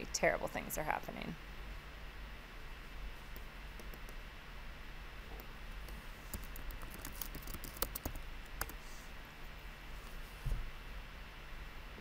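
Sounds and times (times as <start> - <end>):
low steady hum: 0.0 - 12.0
keyboard typing: 3.3 - 4.2, 5.4 - 8.8.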